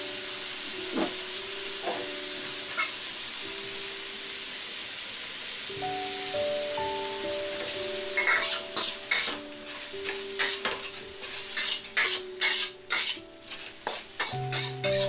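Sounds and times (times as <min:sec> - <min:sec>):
food sizzling in wok: 0:00.0 - 0:15.0
metal spatula scraping wok: 0:08.2 - 0:15.0.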